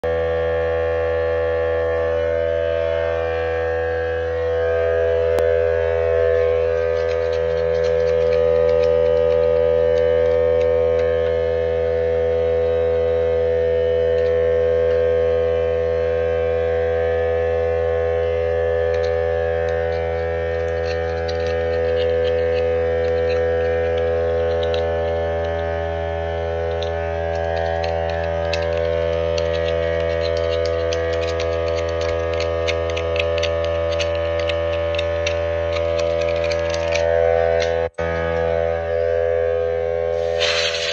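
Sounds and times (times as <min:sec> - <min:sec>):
steady machine hum: 0:00.0 - 0:40.9
hand scraper scraping paint: 0:06.5 - 0:11.2, 0:18.9 - 0:37.9, 0:40.2 - 0:40.9.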